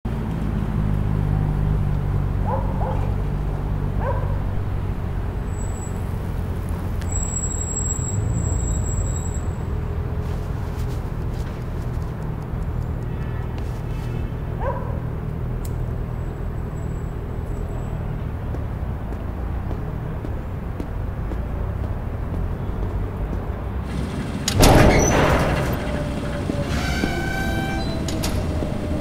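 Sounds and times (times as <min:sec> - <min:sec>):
distant city traffic rumble: 0:00.1 - 0:29.0
distant dog barking: 0:02.4 - 0:03.3, 0:03.9 - 0:04.5, 0:14.6 - 0:15.2.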